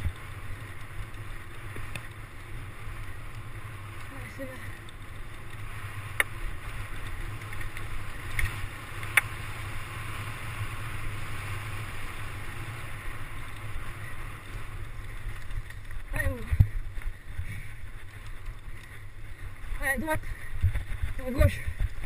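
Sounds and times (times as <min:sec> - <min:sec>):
bike tyres rolling on dirt: 0:00.0 - 0:22.0
sharp clicks: 0:04.8 - 0:09.4
wind rushing on microphone: 0:14.9 - 0:22.0.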